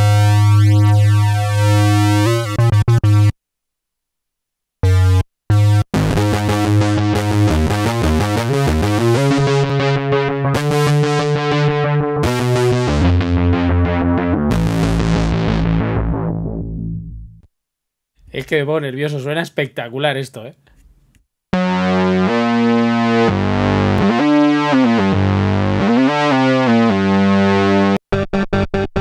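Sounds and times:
synthesizer notes: 0:00.0 - 0:03.3, 0:04.8 - 0:17.4, 0:21.6 - 0:28.0.

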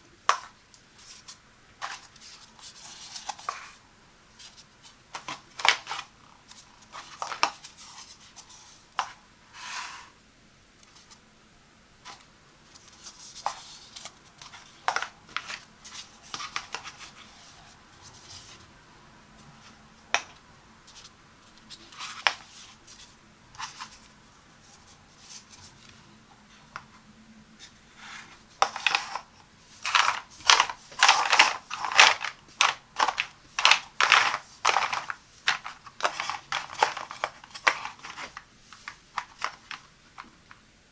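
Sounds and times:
plastic coffee pods clacking: 0:07.0 - 0:07.7, 0:28.6 - 0:40.6.

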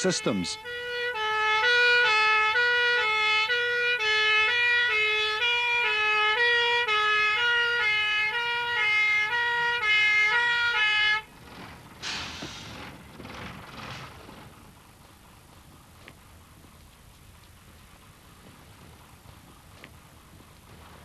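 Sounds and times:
fire engine two-tone siren: 0:00.0 - 0:11.4.

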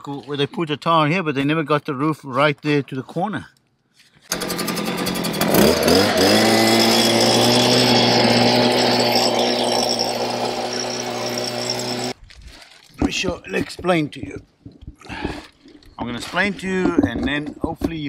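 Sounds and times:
blower motor whining: 0:04.3 - 0:12.2.

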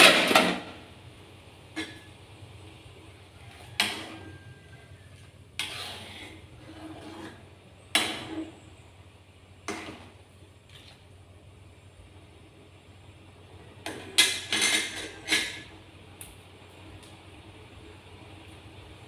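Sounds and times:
metal spatula clanking on wok: 0:03.8 - 0:04.3.

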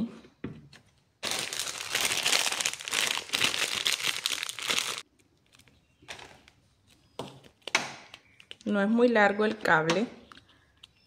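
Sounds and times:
plastic bag crinkling: 0:01.2 - 0:06.5.

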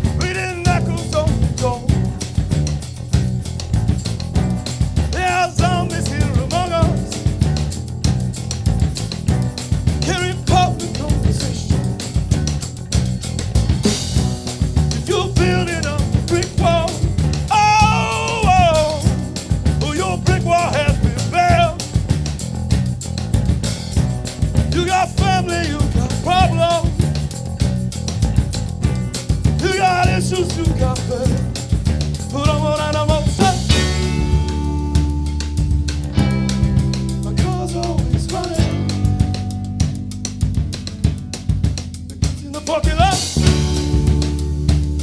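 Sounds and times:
person singing: 0:00.0 - 0:02.0, 0:05.1 - 0:07.4, 0:10.0 - 0:11.9, 0:15.0 - 0:21.9, 0:24.7 - 0:27.0, 0:29.6 - 0:31.5, 0:32.3 - 0:34.9, 0:37.2 - 0:39.3, 0:42.2 - 0:44.1
rock band playing: 0:00.0 - 0:45.0.

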